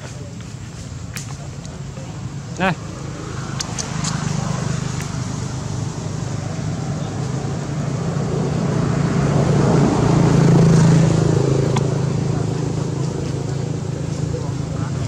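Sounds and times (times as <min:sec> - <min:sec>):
road noise: 0:00.0 - 0:15.0
vehicle engine running: 0:01.7 - 0:15.0.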